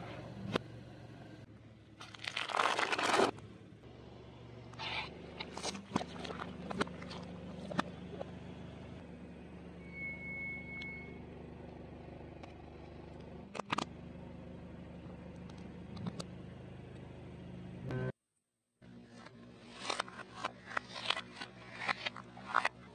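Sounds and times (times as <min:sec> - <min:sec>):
items cracking under a tyre: 0:02.0 - 0:03.5
car engine idling: 0:03.3 - 0:17.9.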